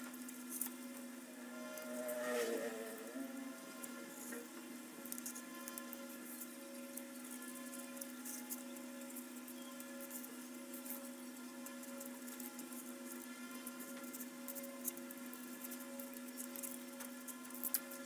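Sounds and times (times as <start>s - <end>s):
electric tool motor whine: 0.8s - 8.0s.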